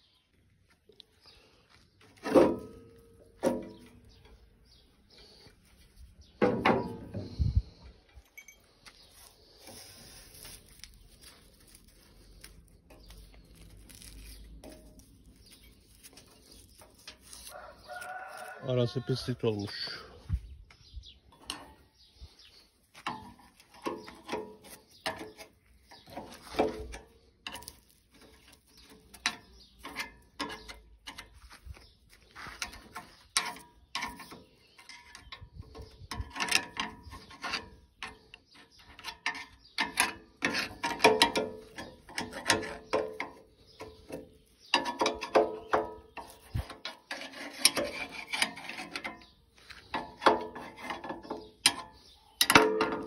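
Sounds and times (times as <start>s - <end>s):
metallic tool clinks and scrapes: 8.2s - 9.7s.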